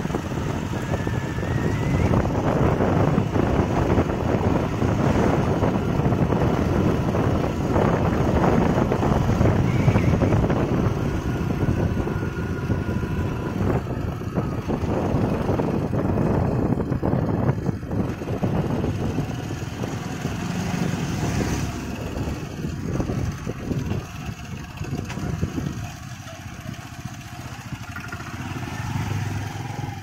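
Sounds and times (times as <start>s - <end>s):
motorbike engine and tyres: 0.0s - 30.0s
wind buffeting microphone: 0.0s - 30.0s.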